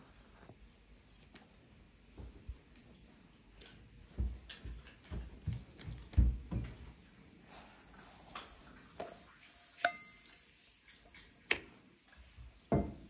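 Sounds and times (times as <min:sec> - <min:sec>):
soft kitchen thumps and clicks: 0:12.4 - 0:13.0.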